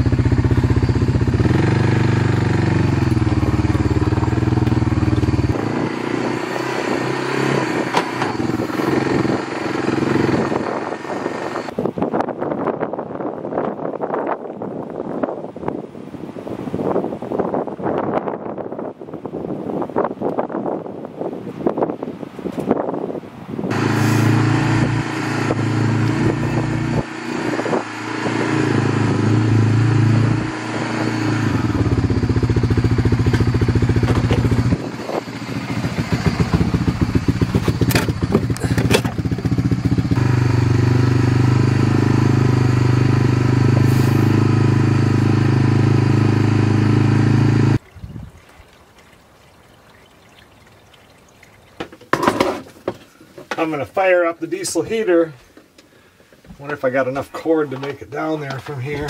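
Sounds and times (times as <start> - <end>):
small engine idling: 0.0 - 5.7, 23.7 - 27.8, 31.2 - 47.8
engine knocks: 0.0 - 5.8, 31.5 - 41.0.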